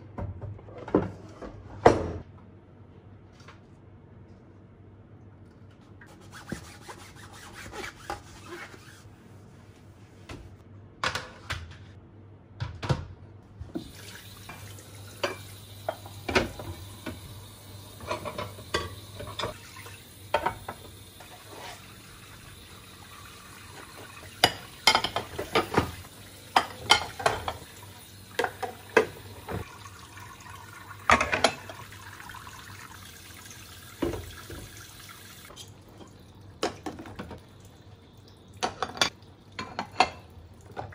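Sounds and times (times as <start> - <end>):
tap water running: 13.6 - 40.9
plates and bowls clinking: 18.0 - 19.6, 24.4 - 27.7.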